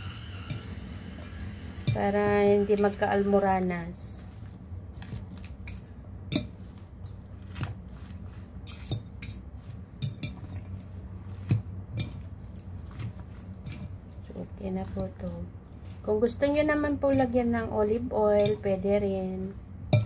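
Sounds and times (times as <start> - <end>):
fork clinking and scraping a bowl: 5.0 - 7.7, 8.3 - 12.3, 13.6 - 14.1, 18.4 - 18.8.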